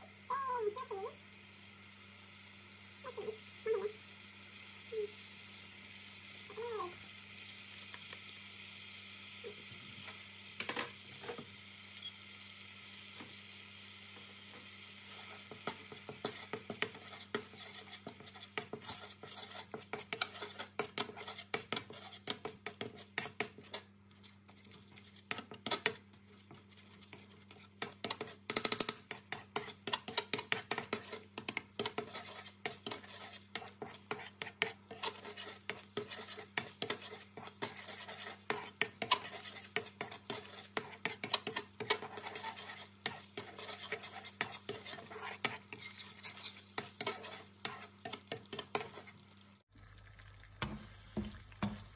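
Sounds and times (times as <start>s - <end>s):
sizzling in a wok: 0.0s - 51.9s
metal spatula scraping a pan: 15.0s - 49.4s.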